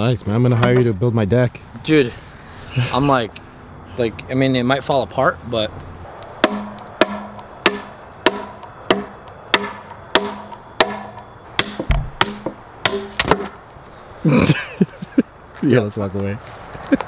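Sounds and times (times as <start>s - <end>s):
hammer knocking wooden stake: 6.4s - 13.6s.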